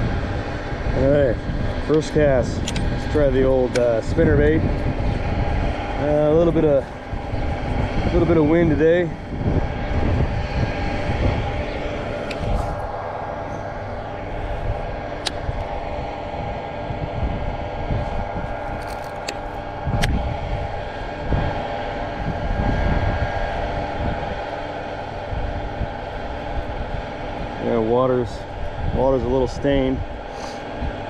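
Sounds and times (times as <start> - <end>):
distant engine hum: 0.0 - 31.0
wind buffeting microphone: 0.0 - 31.0.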